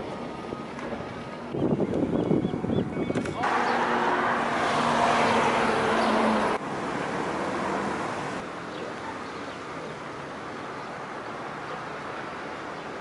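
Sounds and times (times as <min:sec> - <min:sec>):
road traffic hiss: 0:03.4 - 0:13.0.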